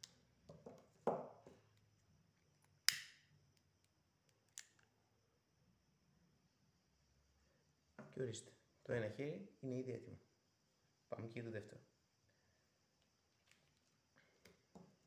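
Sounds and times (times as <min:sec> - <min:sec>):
lighter click with hiss: 0:02.9 - 0:03.2.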